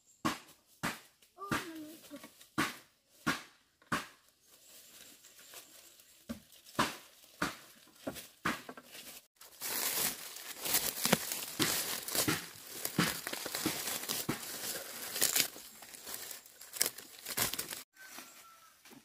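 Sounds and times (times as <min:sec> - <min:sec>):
footsteps on dry leaves: 0:04.2 - 0:18.9
dry leaf litter rustling: 0:04.5 - 0:18.8.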